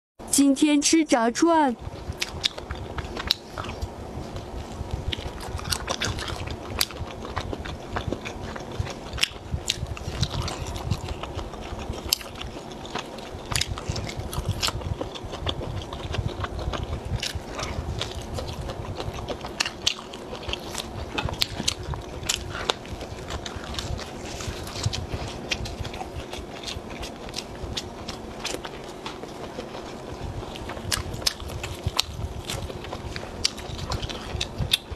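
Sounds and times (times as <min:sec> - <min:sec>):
chewing crispy fried food: 0:01.8 - 0:34.9.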